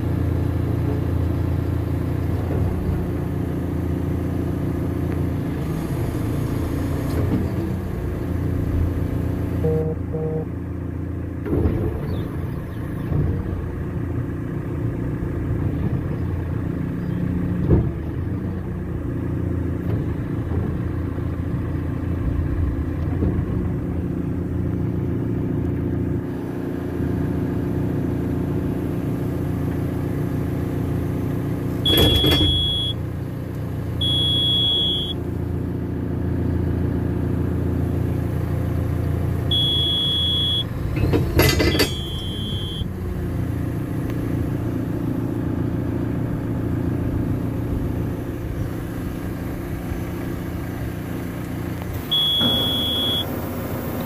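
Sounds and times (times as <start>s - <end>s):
diesel engine running: 0.0s - 54.0s
high electronic warning beeps: 31.9s - 33.0s, 34.0s - 35.2s, 39.5s - 40.7s, 41.7s - 42.9s, 52.0s - 53.3s.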